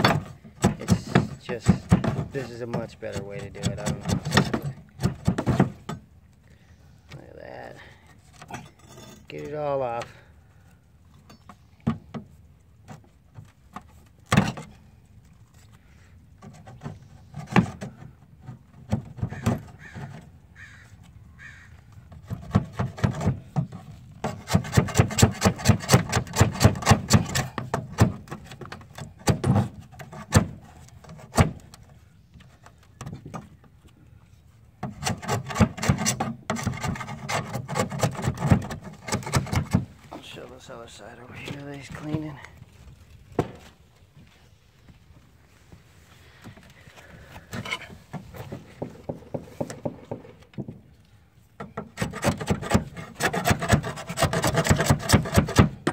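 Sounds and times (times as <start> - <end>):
pry bar scraping metal: 0.0 - 6.0, 8.1 - 10.1, 22.2 - 33.5, 34.8 - 39.9, 51.6 - 55.9.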